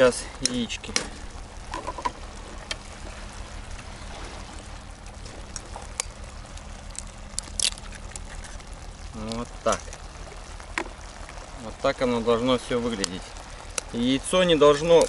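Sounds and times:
egg cracking: 5.4s - 11.3s.

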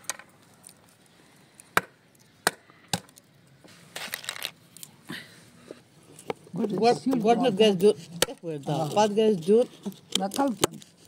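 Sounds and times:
walnuts cracking: 0.0s - 3.3s, 4.0s - 5.0s, 9.8s - 11.0s
shell crunching: 3.9s - 4.9s.

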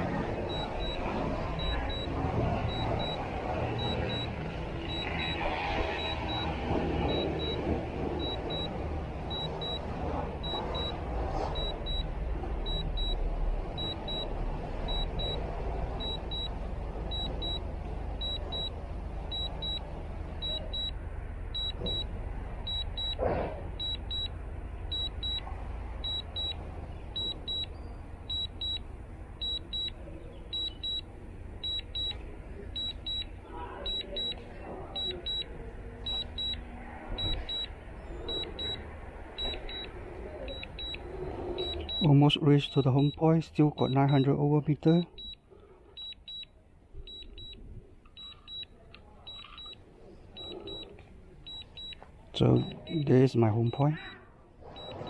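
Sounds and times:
remote controller double beep: 0.4s - 9.8s, 10.4s - 11.0s, 12.7s - 13.2s, 20.4s - 21.0s, 29.4s - 31.0s, 32.8s - 34.4s, 35.0s - 35.5s, 36.1s - 36.6s, 37.2s - 38.8s, 39.4s - 44.3s, 47.1s - 47.6s, 48.2s - 48.7s, 49.3s - 49.8s, 50.4s - 50.9s, 51.5s - 52.0s, 52.6s - 53.0s, 53.6s - 55.0s.

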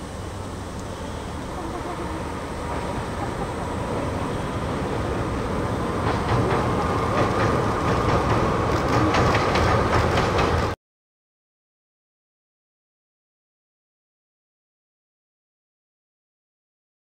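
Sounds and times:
diesel locomotive engines droning: 0.0s - 10.8s
train wheels clickety-clack: 2.6s - 10.8s.

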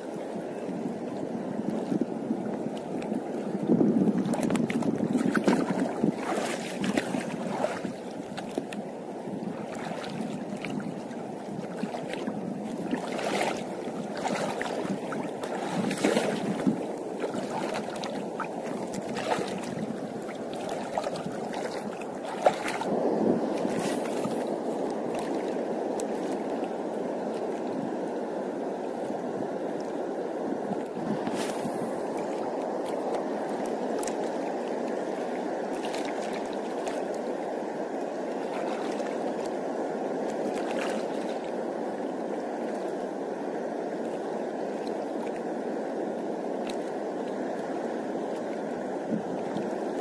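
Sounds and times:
wind buffeting microphone: 0.0s - 37.5s, 47.5s - 50.0s
sea water lapping around rocks: 0.0s - 50.0s.

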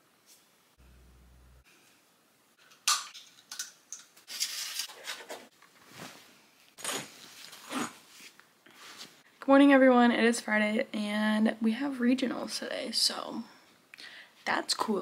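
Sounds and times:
clothes rustling: 4.8s - 9.2s.

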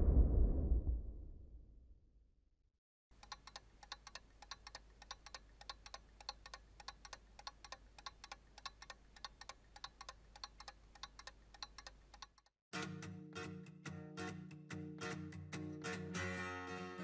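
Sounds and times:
low hum: 0.0s - 2.0s
tape recorder mechanical clicking: 3.2s - 12.5s.

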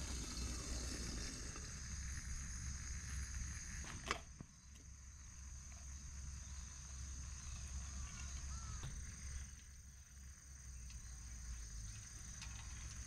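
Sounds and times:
high-pitched insect trill: 0.0s - 3.9s, 4.5s - 13.0s
faint chirp: 4.5s - 13.0s.

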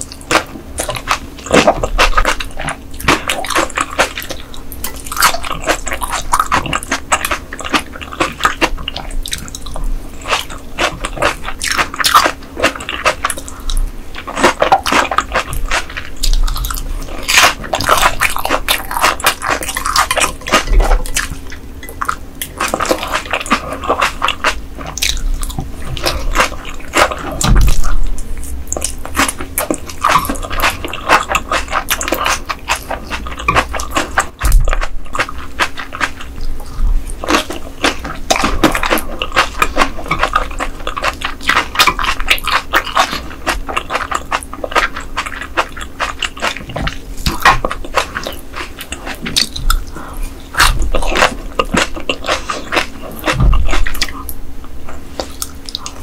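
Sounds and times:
wet chewing and slurping: 0.0s - 54.4s, 55.0s - 56.0s.

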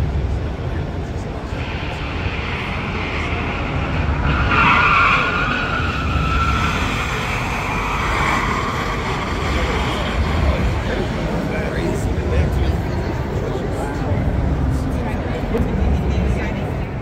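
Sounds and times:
steady low rumble: 0.0s - 17.0s
tyres squealing on concrete: 1.6s - 10.9s.

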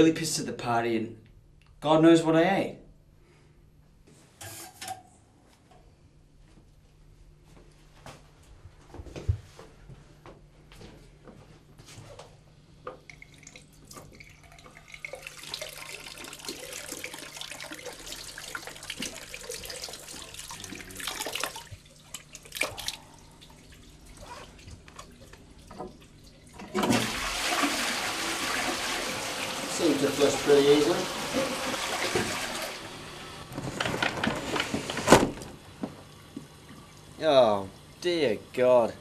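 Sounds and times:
water running: 12.9s - 39.0s
toilet flushing: 13.1s - 39.0s.

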